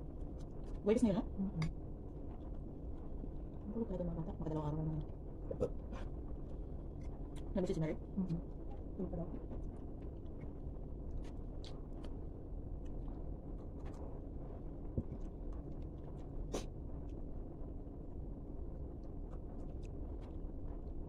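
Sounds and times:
steady low hum: 0.0s - 21.0s
chewing crunchy chicken skin: 9.6s - 17.3s.

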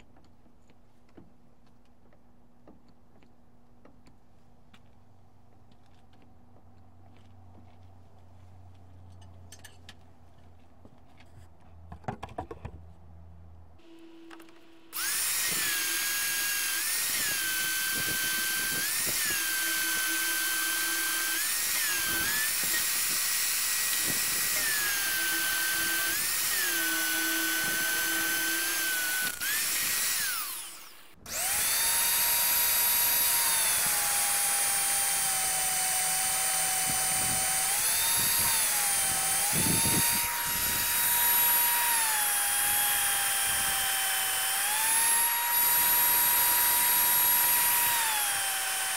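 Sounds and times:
drill motor whine: 13.8s - 48.9s.

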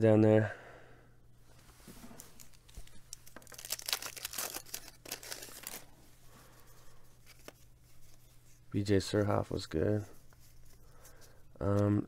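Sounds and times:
wax paper wrapper tearing and crinkling: 2.2s - 6.0s.

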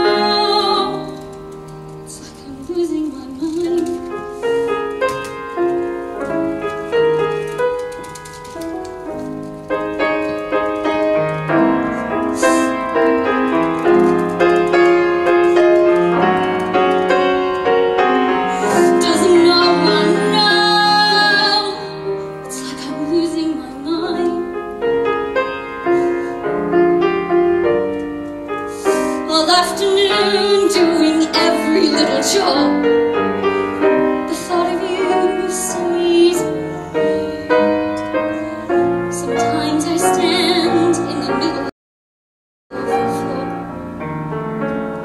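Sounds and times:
woman singing: 0.0s - 1.3s, 2.1s - 4.2s, 18.6s - 24.5s, 29.2s - 32.8s, 34.3s - 37.3s, 39.1s - 41.7s
piano playing: 0.0s - 41.7s, 42.7s - 45.0s.

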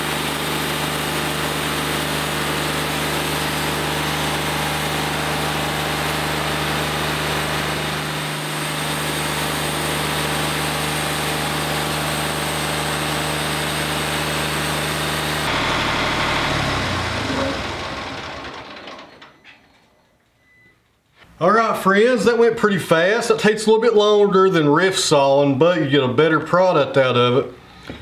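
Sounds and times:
diesel engine running: 0.0s - 19.2s.

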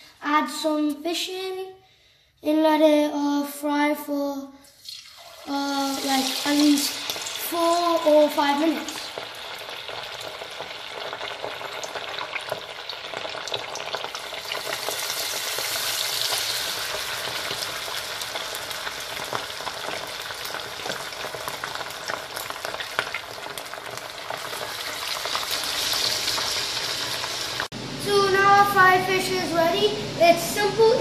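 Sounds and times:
fish deep-frying in oil: 4.8s - 27.7s.

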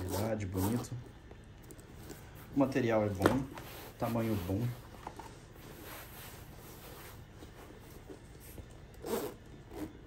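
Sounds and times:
metal zipper being pulled: 9.0s - 10.0s.

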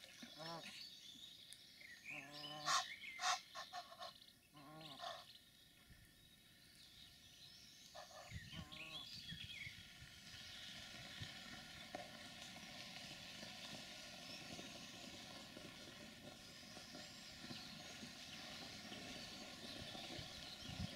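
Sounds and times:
geese giving hoarse calls: 2.1s - 5.3s.

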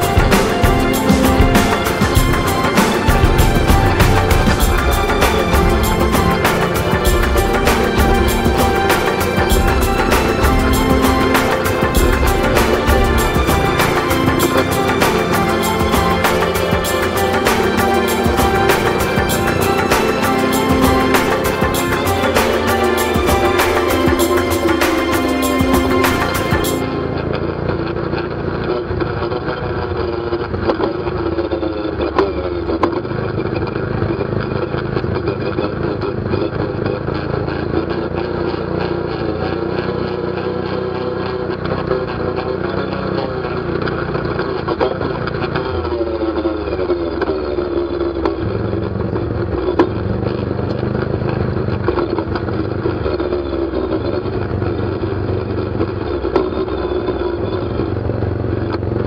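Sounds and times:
atv engine running: 27.0s - 59.0s.

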